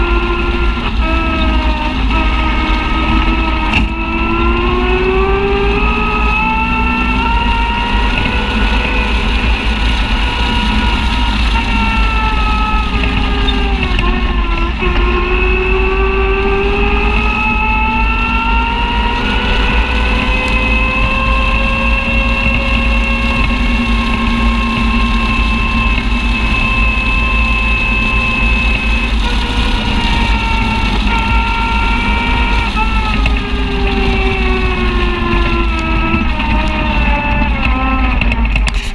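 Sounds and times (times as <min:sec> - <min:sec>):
heavy low rumble: 0:00.0 - 0:38.9
utility vehicle engine whining: 0:00.0 - 0:38.9.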